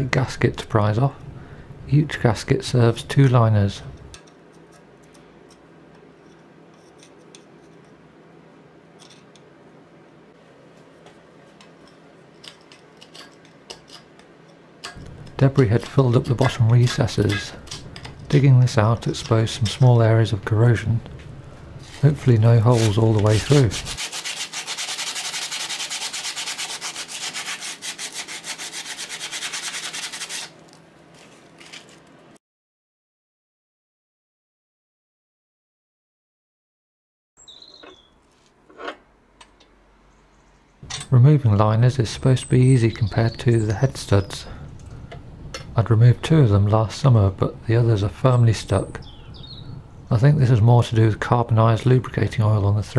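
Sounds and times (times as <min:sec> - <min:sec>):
hand tool scraping debris: 0:14.8 - 0:20.0, 0:21.8 - 0:30.5.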